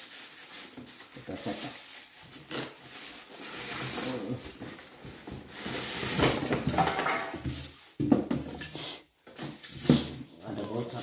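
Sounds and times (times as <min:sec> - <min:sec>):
styrofoam packing rubbing: 0:00.0 - 0:06.7
plastic wrapping rustling: 0:00.0 - 0:08.0.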